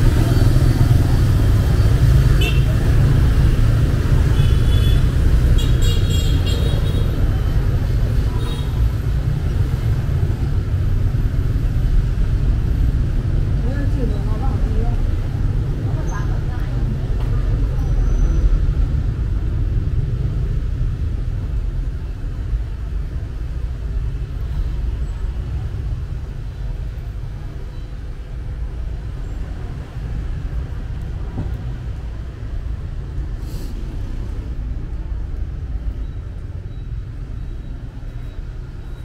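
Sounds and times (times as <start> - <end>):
low rumble of passing vehicles: 0.0 - 39.0
brief high hiss: 33.4 - 33.9.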